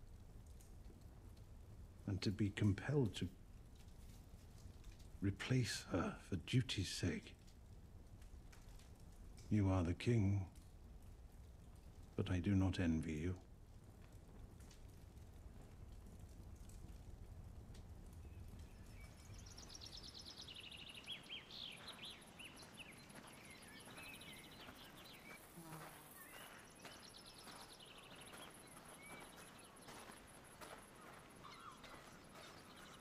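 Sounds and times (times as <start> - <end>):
bird chirps and trills: 18.3 - 33.0.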